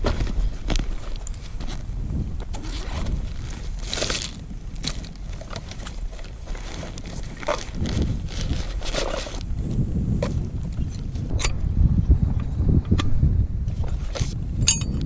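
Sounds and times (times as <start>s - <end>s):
rustling backpack fabric: 0.0s - 11.3s.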